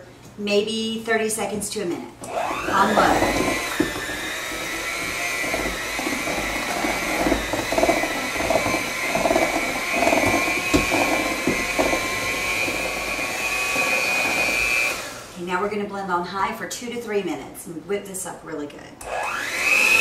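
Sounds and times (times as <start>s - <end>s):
beaters churning frosting: 2.2s - 15.4s, 19.3s - 20.0s
hand mixer motor whine: 2.2s - 15.4s, 19.0s - 20.0s
beaters knocking on bowl: 2.7s - 14.8s.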